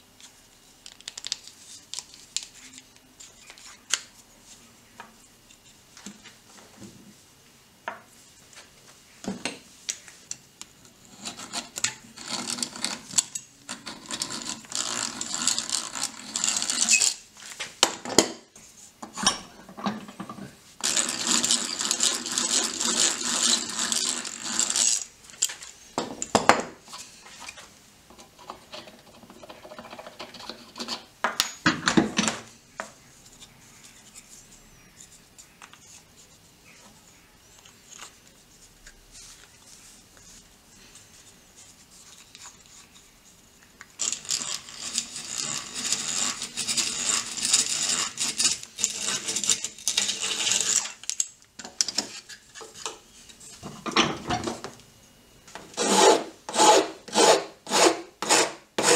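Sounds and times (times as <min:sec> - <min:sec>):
hand drill boring wood: 0:13.8 - 0:17.2, 0:20.8 - 0:25.0, 0:44.0 - 0:50.9, 0:55.8 - 0:58.9.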